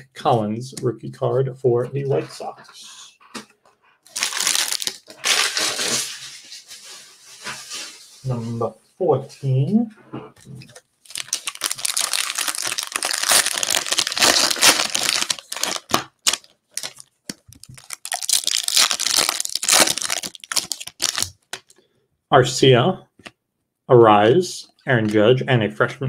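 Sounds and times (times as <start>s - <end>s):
foil wrapper crinkling and tearing: 4.1s - 6.2s, 11.0s - 21.8s.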